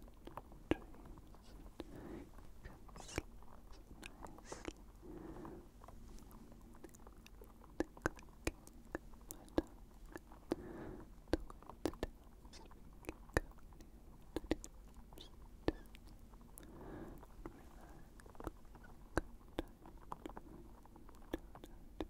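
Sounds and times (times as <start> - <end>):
breathy whispers: 0.7 - 13.6, 14.4 - 22.0
wet sticky mouth clicks: 2.6 - 4.8, 6.8 - 10.6, 11.3 - 16.2.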